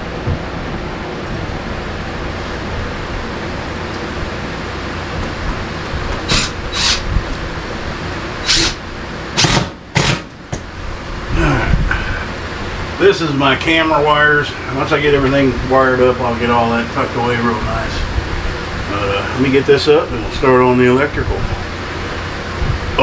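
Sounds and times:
steady rushing noise: 0:00.0 - 0:23.0
cordless drill driving screws: 0:08.4 - 0:08.8.

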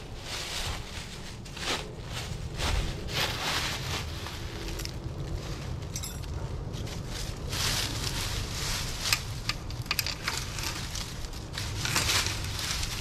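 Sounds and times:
dry leaves crunching: 0:00.0 - 0:13.0.

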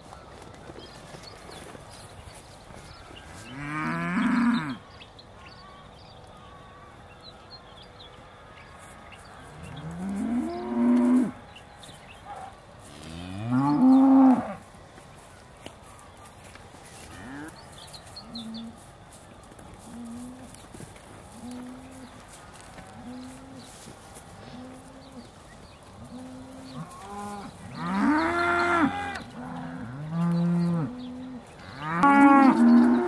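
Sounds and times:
cows mooing: 0:03.5 - 0:04.8, 0:09.8 - 0:11.4, 0:13.0 - 0:14.6, 0:26.0 - 0:33.0.

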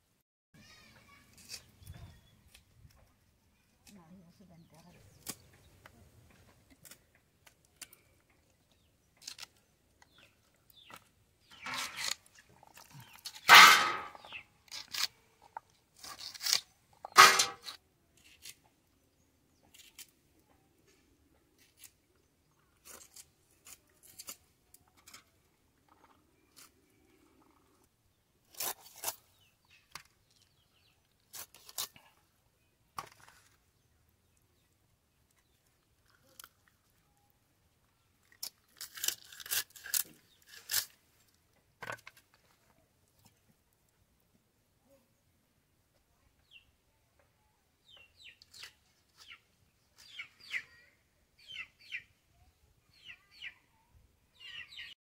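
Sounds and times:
blade cutting onion stalks: 0:05.1 - 0:05.4, 0:09.2 - 0:09.6, 0:11.0 - 0:12.3, 0:13.3 - 0:15.2, 0:16.0 - 0:18.6, 0:19.7 - 0:20.1, 0:22.8 - 0:24.4, 0:28.5 - 0:30.1, 0:31.3 - 0:32.0, 0:38.4 - 0:41.0
knife scraping fish scales: 0:11.6 - 0:15.2, 0:16.0 - 0:18.6, 0:22.8 - 0:24.4, 0:28.5 - 0:29.3, 0:31.3 - 0:32.0, 0:38.4 - 0:41.0.

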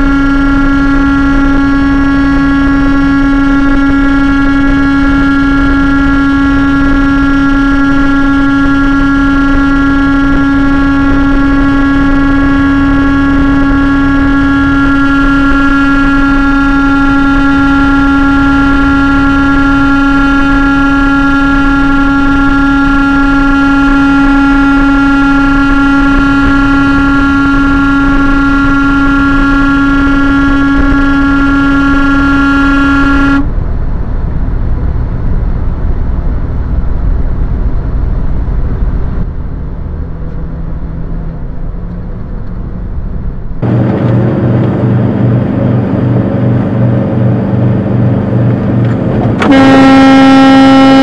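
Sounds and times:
long loud vehicle horn blast: 0:00.0 - 0:33.7, 0:49.4 - 0:51.0
deep steady hum: 0:00.0 - 0:51.0
highway road noise: 0:00.0 - 0:51.0.

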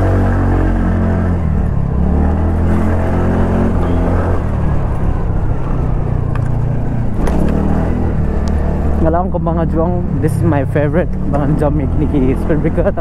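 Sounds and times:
road and wind noise: 0:00.0 - 0:13.0
scooter engine running: 0:01.2 - 0:13.0.

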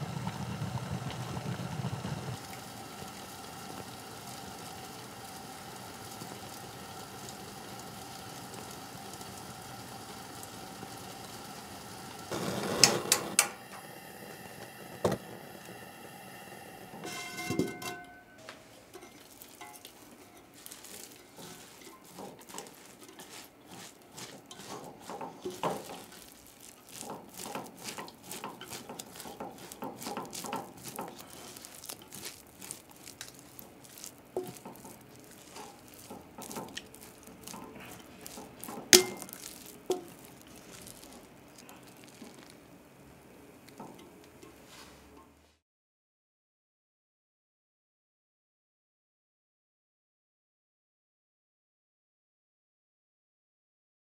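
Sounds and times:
pot of rice steaming: 0:00.0 - 0:45.4
rice being stirred: 0:00.0 - 0:45.4.

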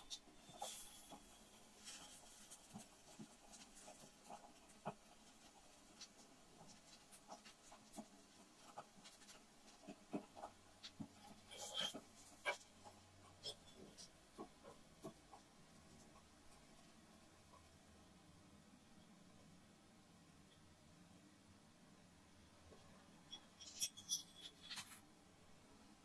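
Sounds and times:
metal spatula scraping small pan: 0:00.0 - 0:02.3, 0:11.2 - 0:12.8, 0:23.3 - 0:25.0.

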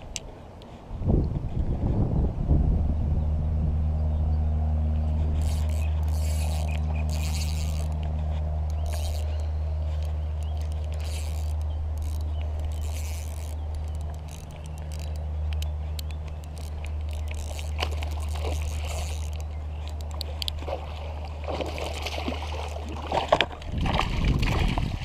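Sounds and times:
low motor hum: 0:00.0 - 0:25.0
scraping rustling bursts: 0:05.1 - 0:23.4.

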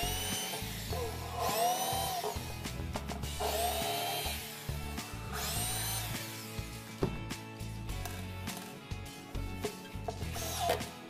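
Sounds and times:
electric drill whining into wood: 0:00.0 - 0:06.7, 0:10.2 - 0:11.0.

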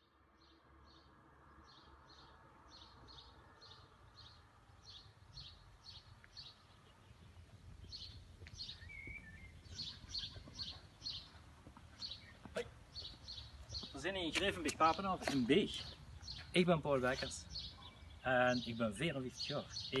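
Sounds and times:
faint low outdoor rumble: 0:00.0 - 0:20.0
songbird chirping: 0:00.0 - 0:20.0
lower bird call: 0:00.4 - 0:13.9.

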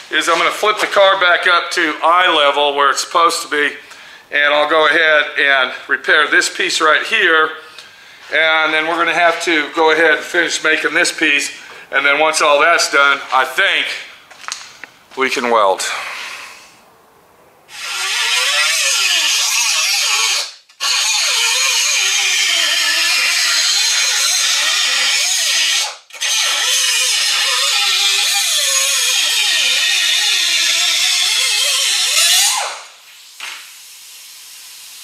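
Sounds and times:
electric grinder on sheet metal: 0:17.7 - 0:35.0.

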